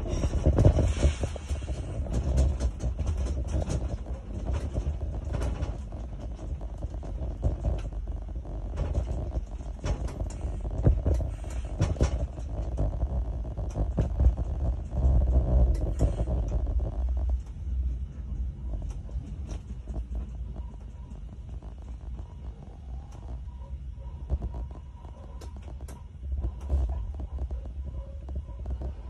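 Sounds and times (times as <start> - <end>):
electric train rumbling: 0.0 - 29.0
wheels clicking over rails: 0.0 - 29.0.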